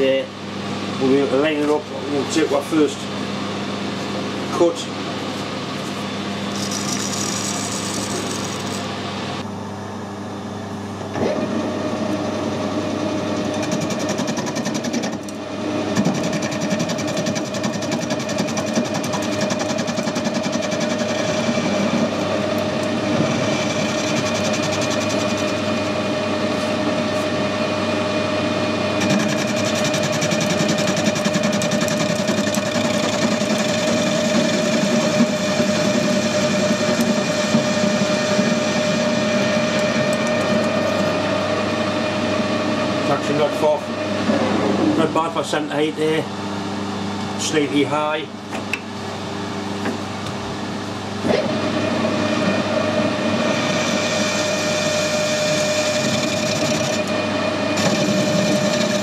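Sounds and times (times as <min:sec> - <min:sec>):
lathe machine hum: 0:00.4 - 0:45.5, 0:49.2 - 0:59.0
lathe cutting whine: 0:06.1 - 0:09.5, 0:11.1 - 0:45.4, 0:51.1 - 0:59.0.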